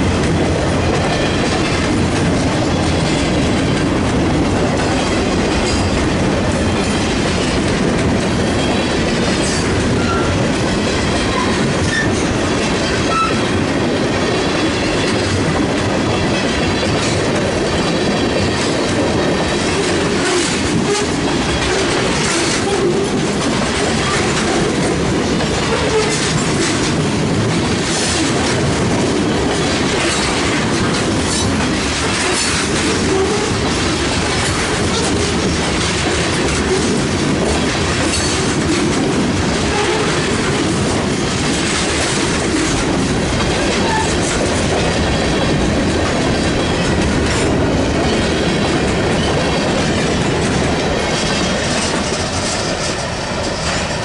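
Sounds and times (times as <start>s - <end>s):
freight train wheels rumbling: 0.0s - 54.0s.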